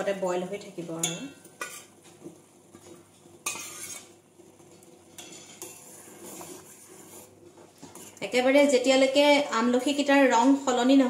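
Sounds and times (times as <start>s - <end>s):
ladle scraping steel pot: 1.0s - 2.0s, 3.4s - 8.3s.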